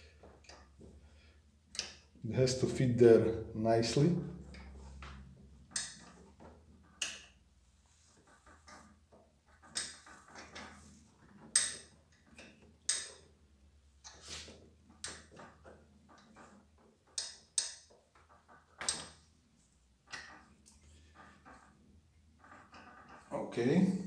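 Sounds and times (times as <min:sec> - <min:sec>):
small metallic clicks and taps: 0:00.1 - 0:01.0, 0:01.7 - 0:02.1, 0:04.4 - 0:07.4, 0:08.2 - 0:13.3, 0:14.9 - 0:19.2, 0:20.0 - 0:21.7.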